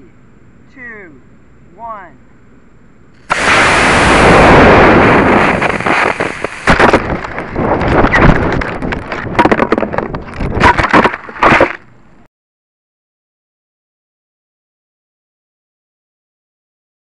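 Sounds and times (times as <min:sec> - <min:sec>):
rocket motor hiss: 0:03.2 - 0:07.2
wind buffeting: 0:03.3 - 0:10.6.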